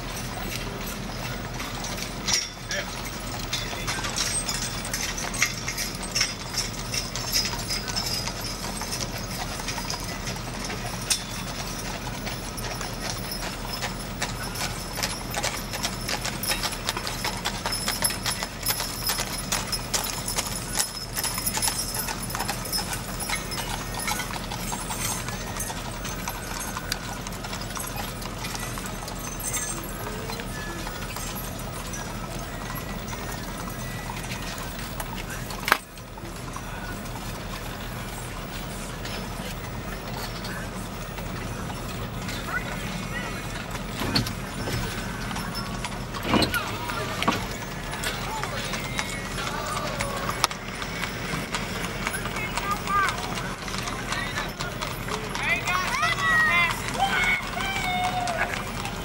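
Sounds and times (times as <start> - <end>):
hooves clip-clopping on asphalt: 0.0 - 59.0.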